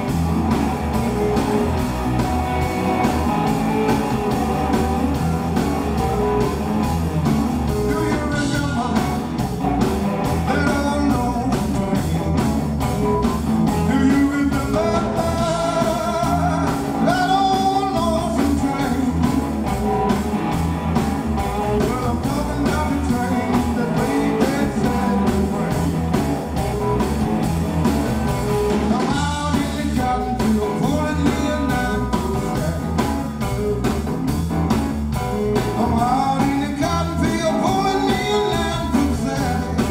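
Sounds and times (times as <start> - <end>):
blues band playing: 0.0 - 39.9
man singing: 7.7 - 9.4, 10.4 - 19.5, 21.4 - 26.2, 28.8 - 33.8, 35.6 - 39.9.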